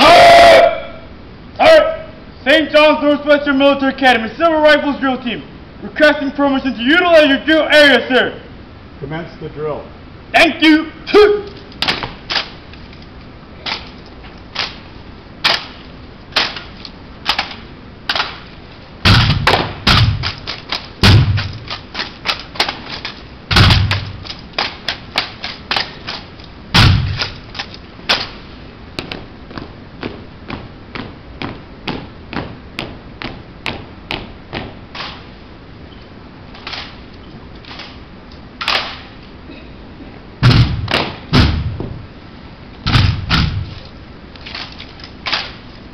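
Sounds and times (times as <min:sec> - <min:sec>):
heavy thuds: 0:19.0 - 0:24.4, 0:26.7 - 0:28.4, 0:40.4 - 0:42.1, 0:42.8 - 0:43.9.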